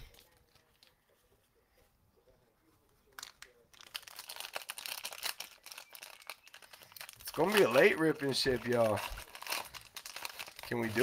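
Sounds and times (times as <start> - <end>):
plastic wrapping crinkling: 3.1 - 11.0.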